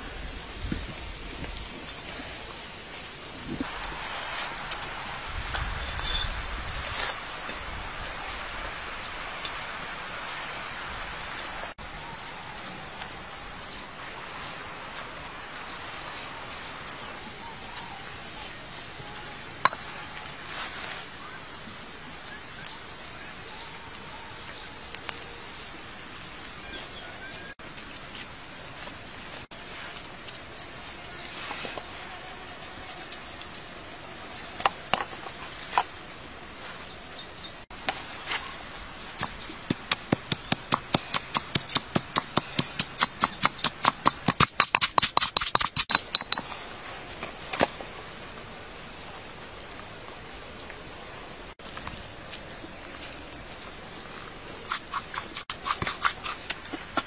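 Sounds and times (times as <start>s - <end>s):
outdoor background noise: 0.0s - 57.0s
pestle pounding in a mortar: 39.7s - 46.4s.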